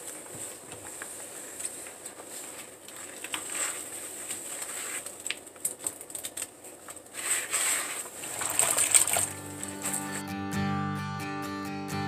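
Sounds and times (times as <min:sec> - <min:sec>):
wet foam crackling and sloshing: 0:07.0 - 0:09.4.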